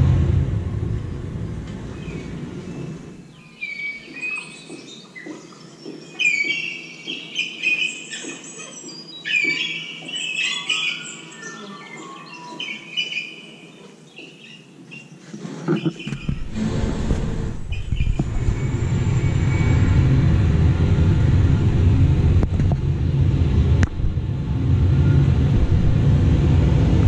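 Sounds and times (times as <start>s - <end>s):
birds chirping and twittering: 0.8s - 20.0s.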